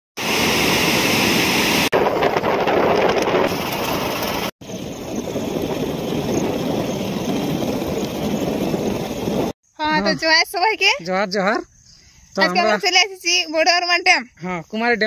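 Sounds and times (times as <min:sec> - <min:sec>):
steady rushing outdoor noise: 0:00.2 - 0:09.6.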